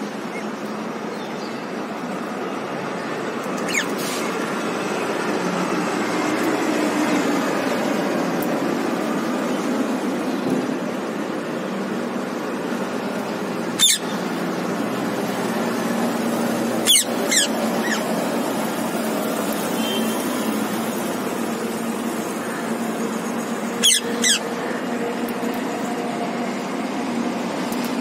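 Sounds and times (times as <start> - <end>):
city traffic hum: 0.0 - 28.0
parakeets screeching: 3.5 - 4.4, 13.6 - 14.4, 16.6 - 18.5, 22.2 - 25.2.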